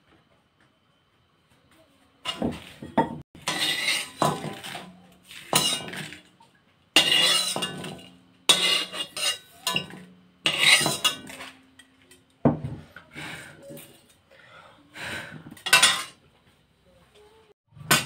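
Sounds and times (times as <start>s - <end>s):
knife scraping metal wok: 2.3s - 2.8s, 3.4s - 6.3s, 7.0s - 11.9s, 15.6s - 16.2s.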